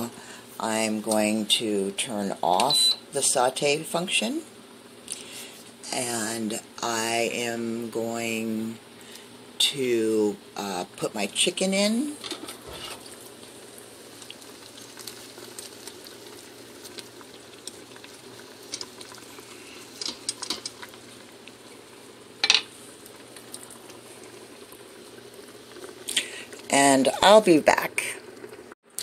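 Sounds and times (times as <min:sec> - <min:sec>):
sauce simmering and bubbling: 0:12.5 - 0:27.2, 0:28.2 - 0:28.8.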